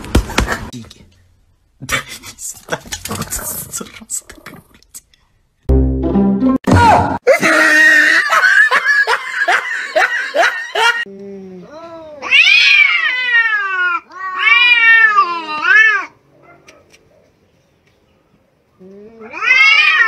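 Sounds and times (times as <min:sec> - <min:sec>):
cats caterwauling: 0:09.4 - 0:16.7, 0:18.8 - 0:20.0.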